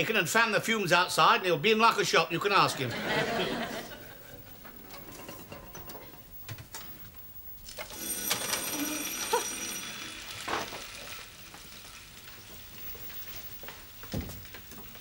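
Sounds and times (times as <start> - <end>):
bacon sizzling in frying pan: 9.2 - 14.6.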